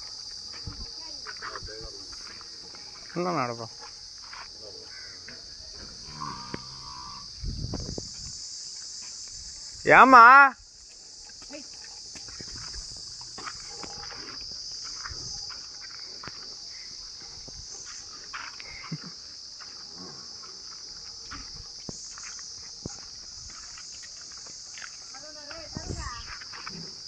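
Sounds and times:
high insect buzz: 0.0s - 27.0s
hoof steps on dirt: 10.7s - 16.6s.

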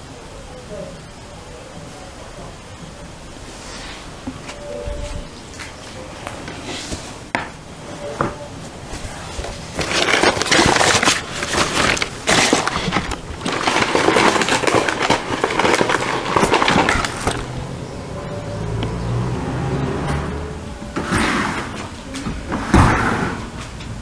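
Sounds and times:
crumpled paper crackling: 8.9s - 17.8s.

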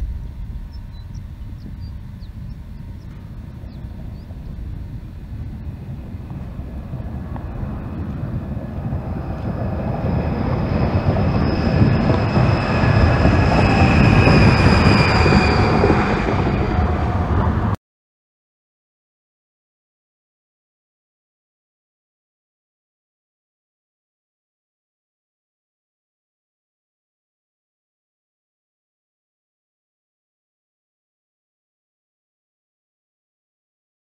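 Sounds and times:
steady high whine: 0.0s - 17.8s
truck tyres rumbling passing: 0.0s - 17.8s.

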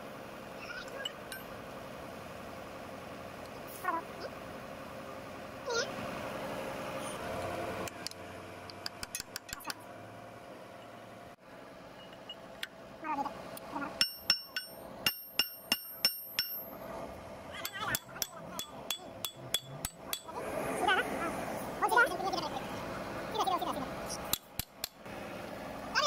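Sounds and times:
hammer striking steel pin: 14.0s - 16.7s, 17.6s - 20.3s, 24.3s - 25.0s.

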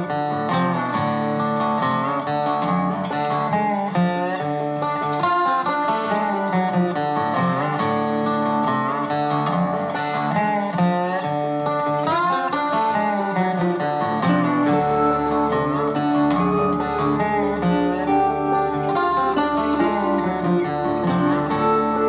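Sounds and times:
guitar instrumental with bending notes: 0.0s - 22.0s
steady bass: 14.5s - 22.0s.

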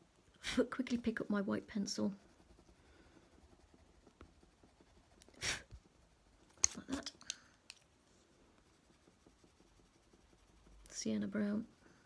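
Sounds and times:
light clicks of pencils: 6.5s - 7.9s.

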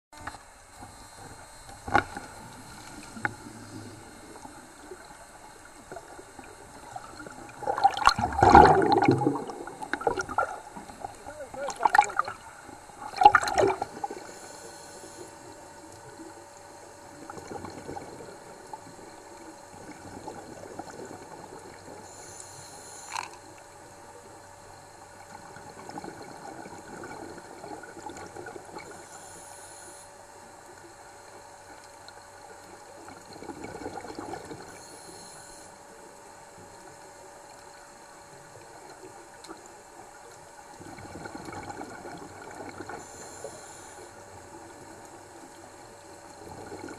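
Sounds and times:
muffled water wash: 0.2s - 14.4s
bubbles gurgling: 3.0s - 14.3s, 17.2s - 19.0s, 19.7s - 22.0s, 25.2s - 28.9s, 33.0s - 34.7s, 40.8s - 43.0s, 46.3s - 46.9s.

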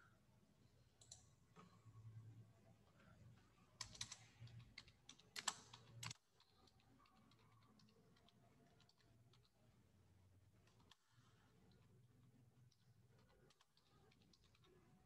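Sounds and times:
computer keyboard typing: 1.0s - 1.3s, 3.7s - 9.6s, 10.5s - 11.0s, 11.6s - 15.0s.

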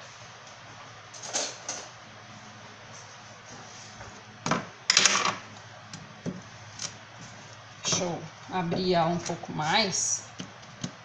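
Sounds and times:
kitchen clatter and rustle: 1.1s - 2.0s.

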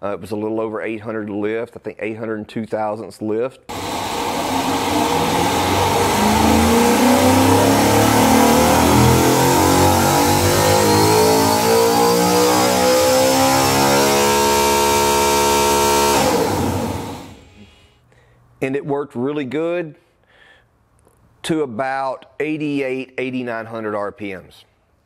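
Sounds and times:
engine spun by test rig: 3.7s - 17.5s.

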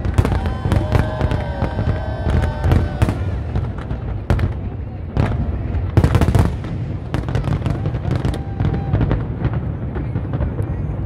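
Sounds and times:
fireworks bangs: 0.0s - 11.0s
fireworks cracks and crackling: 0.0s - 11.0s.

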